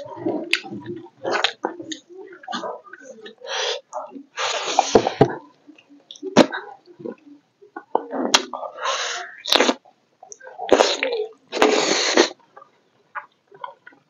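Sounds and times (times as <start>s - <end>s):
person chewing and slurping: 10.6s - 12.4s.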